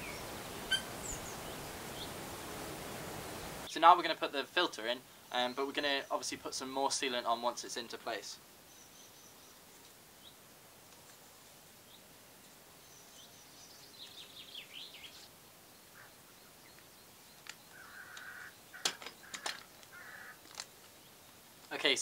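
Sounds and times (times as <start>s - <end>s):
harsh bird calls: 0.0s - 2.2s, 13.2s - 22.0s
songbird chirping: 0.0s - 22.0s.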